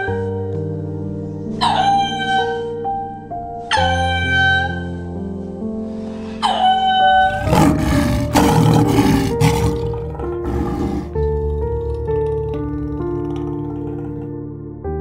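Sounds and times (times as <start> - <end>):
background music: 0.0 - 15.0
lion roaring: 7.2 - 14.2.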